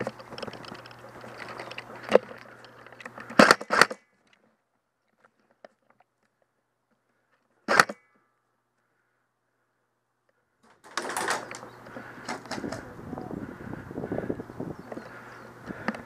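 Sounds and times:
airsoft gun shots: 7.7 - 8.1.

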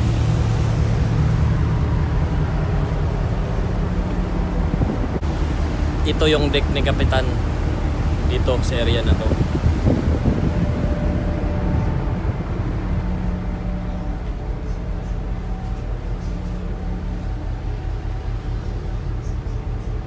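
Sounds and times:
ship machinery low drone: 0.0 - 20.0
faint steady tones: 10.4 - 20.0.

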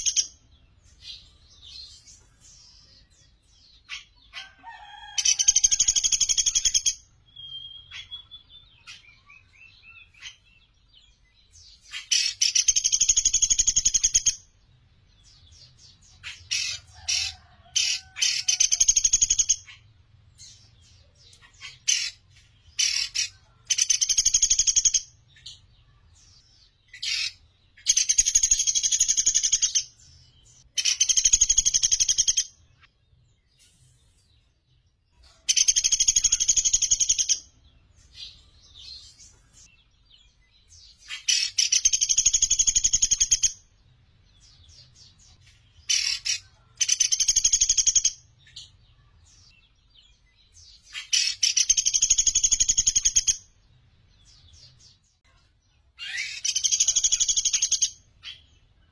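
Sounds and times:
woodpecker trilling call: 11.7 - 14.5, 16.1 - 19.9, 21.2 - 25.6, 26.9 - 29.9, 30.7 - 32.6, 35.5 - 37.5, 40.9 - 43.6, 45.8 - 48.7, 50.8 - 53.5, 56.0 - 58.5.

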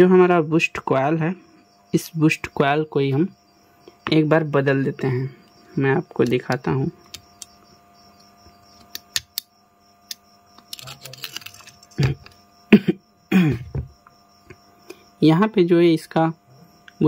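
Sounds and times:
phone parts clicking and tapping: 6.2 - 7.6, 8.2 - 12.4.

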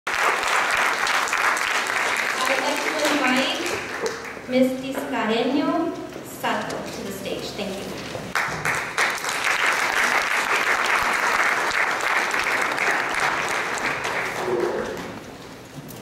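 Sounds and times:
audience applauding: 0.1 - 4.5, 8.3 - 15.2.

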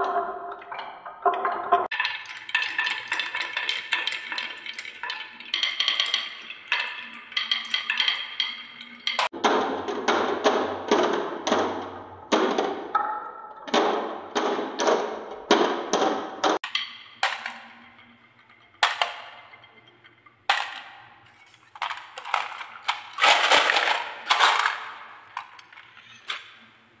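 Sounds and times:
marbles dropping onto marbles: 1.8 - 9.3, 16.6 - 26.7
marbles rolling on wooden track: 1.8 - 9.4, 16.6 - 26.8.

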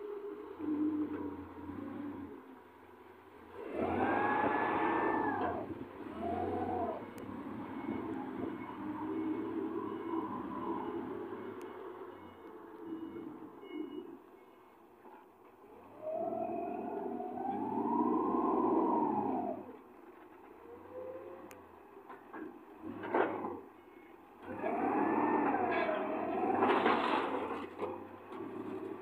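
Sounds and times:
forklift engine revving with whine: 3.4 - 14.1, 15.7 - 19.9, 24.4 - 29.0.

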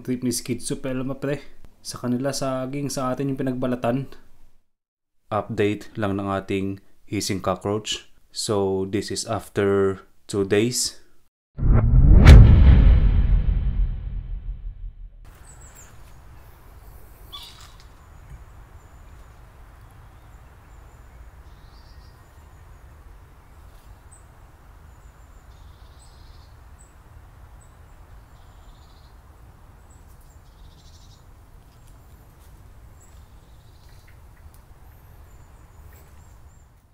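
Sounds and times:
steady low rumble: 11.6 - 15.2.

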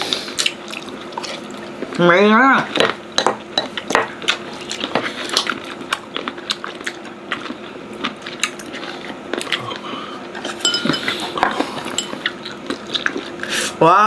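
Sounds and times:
faint steady hum: 0.0 - 14.0
crunchy chewing: 0.1 - 2.0, 2.6 - 13.7
utensils clinking against dishes: 10.4 - 13.2.

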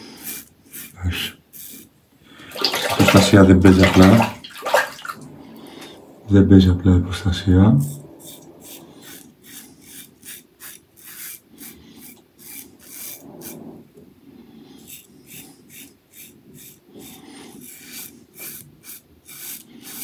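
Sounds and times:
razor scraping stubble: 0.0 - 1.9, 7.8 - 13.9, 14.6 - 20.0.

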